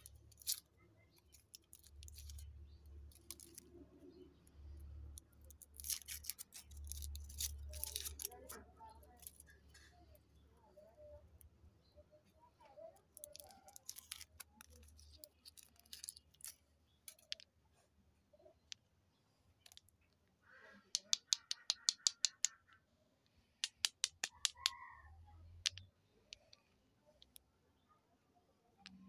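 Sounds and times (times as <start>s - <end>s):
foil wrappers crinkling: 0.0s - 3.7s, 5.2s - 9.6s, 13.1s - 17.4s
sharp clicks: 20.9s - 22.7s, 23.6s - 24.8s.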